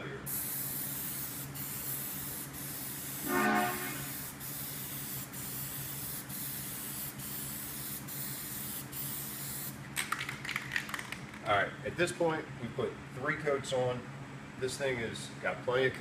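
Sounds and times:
low steady hum: 0:00.0 - 0:10.1
aerosol spray can hissing: 0:00.3 - 0:09.8
short pitched tone: 0:03.2 - 0:04.1.

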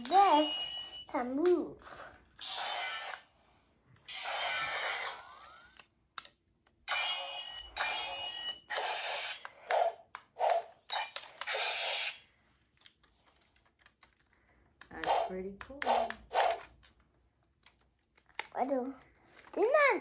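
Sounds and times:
toy electronic sound effects: 0:02.4 - 0:03.4, 0:04.0 - 0:05.9, 0:06.9 - 0:10.0, 0:10.6 - 0:12.3.

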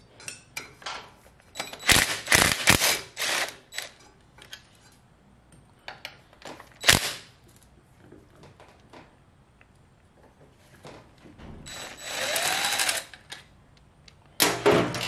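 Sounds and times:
cordless drill bursts: 0:01.8 - 0:03.9, 0:11.7 - 0:13.1.

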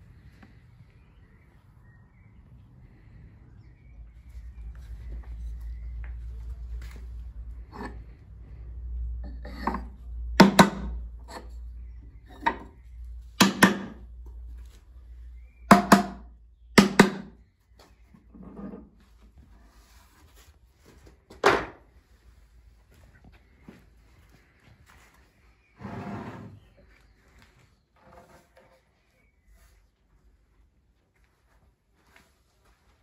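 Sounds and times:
sharp wooden knocks: 0:10.4 - 0:11.0, 0:13.4 - 0:14.0, 0:15.7 - 0:17.4.

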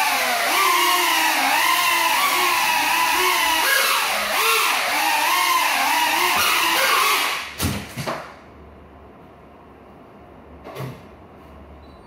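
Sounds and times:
drone motors whining: 0:00.0 - 0:07.4.

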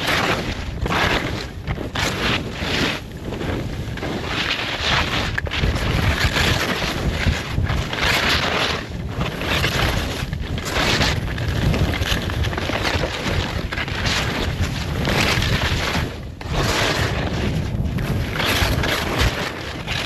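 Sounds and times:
skis scraping through snow: 0:00.0 - 0:20.0
wind rushing over microphone: 0:00.0 - 0:20.0.

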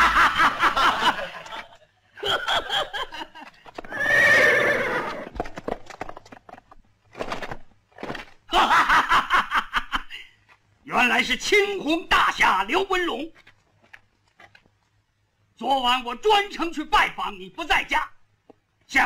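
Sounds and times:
hoof clops: 0:03.4 - 0:07.0
horses whinnying: 0:03.7 - 0:05.6.

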